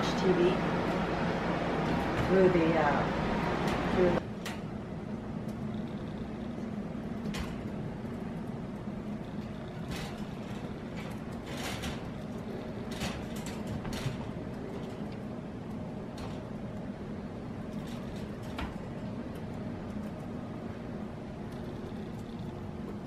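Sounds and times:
steady low hum: 0.0 - 23.0
wire mesh panels clicking: 5.4 - 23.0.

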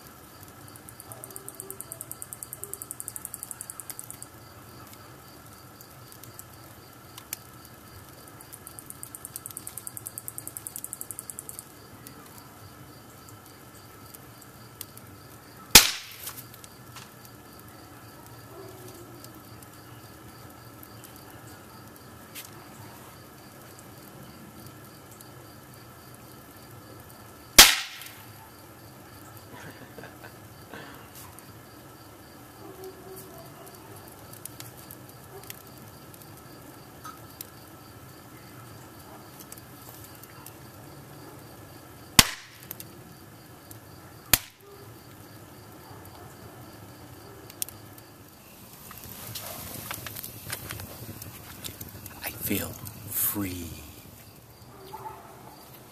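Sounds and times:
wood fire crackling: 0.0 - 55.9
insect trilling: 0.7 - 4.3, 48.3 - 54.9
sharp loud pops: 15.8 - 16.4, 27.6 - 28.2, 42.2 - 42.7, 44.3 - 44.6.

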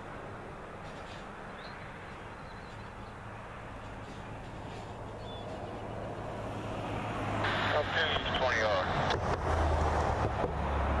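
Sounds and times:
bird chirp: 1.4 - 3.3, 5.0 - 6.0.

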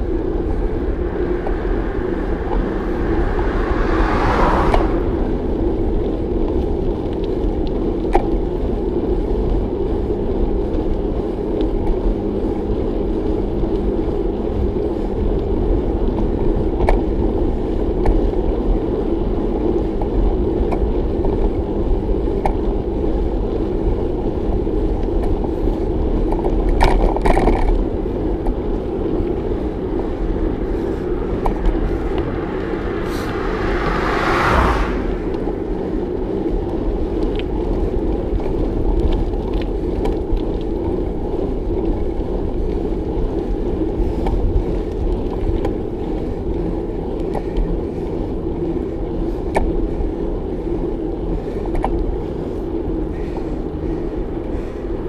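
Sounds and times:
wind rush over microphone: 0.0 - 7.4, 27.9 - 49.2
tyre rumble on road: 0.0 - 55.0
whoosh: 0.6 - 6.0, 30.6 - 35.9.

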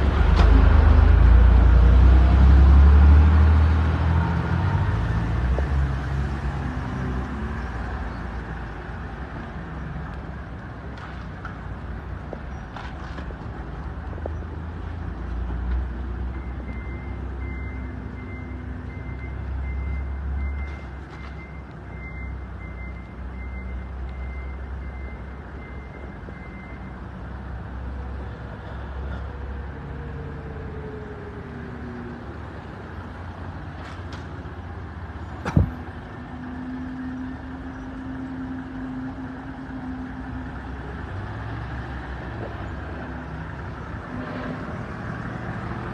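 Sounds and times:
bus engine rumbling: 0.0 - 45.9
reversing alarm beeping: 16.3 - 26.9
sharp knock: 35.4 - 35.8.

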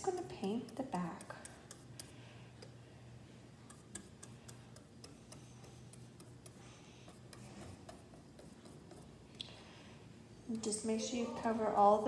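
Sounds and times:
paintbrush dabbing paint: 0.0 - 9.3
low steady hum: 0.0 - 12.0.

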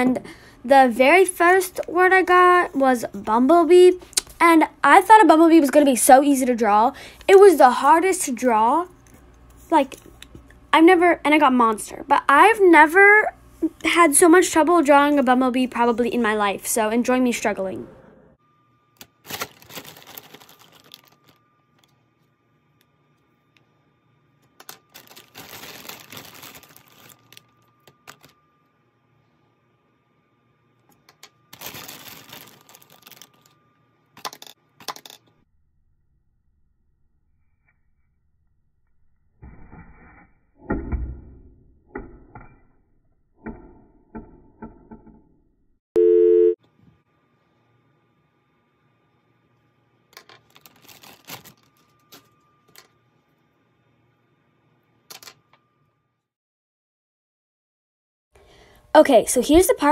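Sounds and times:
plastic bag crinkling: 19.0 - 21.4, 24.6 - 28.4, 31.5 - 33.6, 50.3 - 52.0
electronic test-tone beep: 46.0 - 46.6.

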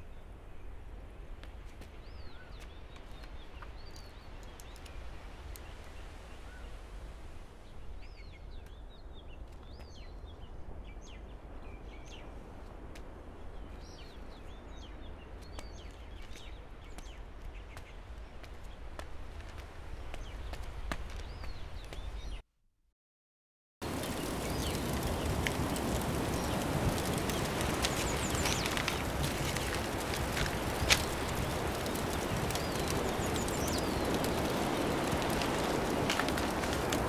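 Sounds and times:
faint clicks: 2.6 - 5.7, 24.0 - 37.0
birds chirping: 23.9 - 37.0.

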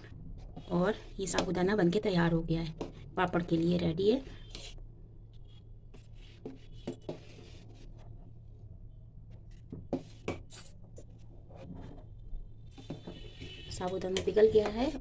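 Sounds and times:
metal spoon scraping steel pan: 13.0 - 14.7.

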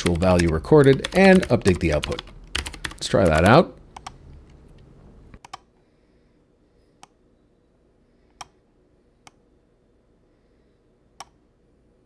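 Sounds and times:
computer mouse clicks: 0.0 - 4.2, 5.4 - 5.7.

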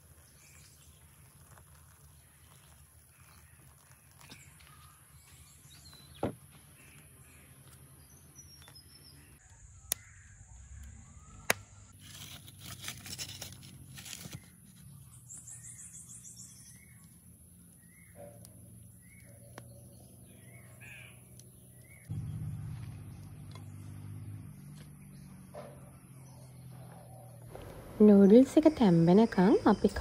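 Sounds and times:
faint birds calling: 14.9 - 30.0.

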